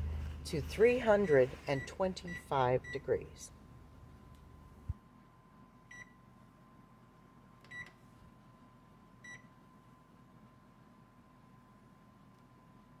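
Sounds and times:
oven keypad beeps: 1.1 - 3.1, 5.9 - 6.2, 7.7 - 7.9, 9.2 - 9.5.

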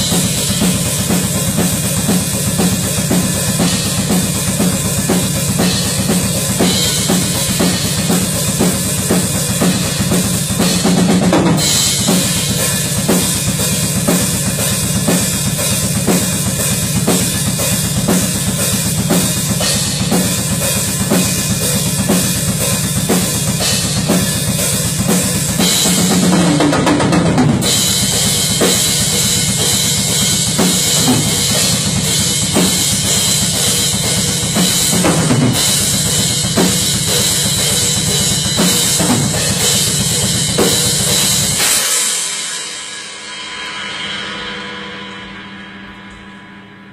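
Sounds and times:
rock drum kit played hard: 0.0 - 46.3
cymbals ringing: 27.6 - 46.9.

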